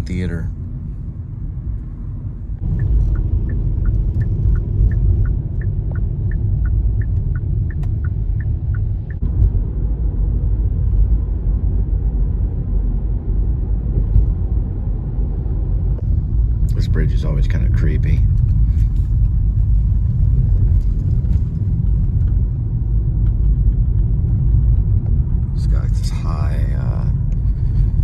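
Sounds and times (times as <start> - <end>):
car driving rumble: 0.0 - 28.0
turn signal ticking: 2.6 - 9.6.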